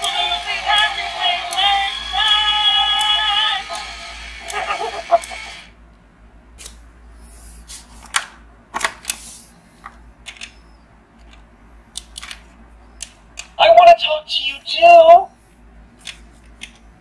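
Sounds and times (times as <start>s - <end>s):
toy recorded singing: 0.0s - 5.7s.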